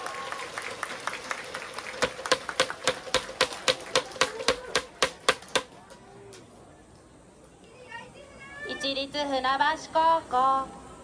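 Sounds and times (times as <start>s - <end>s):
sharp hand claps: 0.0s - 5.8s
faint crowd noise: 0.0s - 11.0s.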